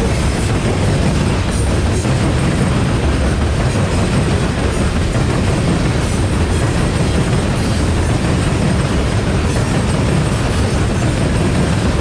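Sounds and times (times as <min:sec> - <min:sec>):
freight train wheels rumbling on rails: 0:00.0 - 0:12.0.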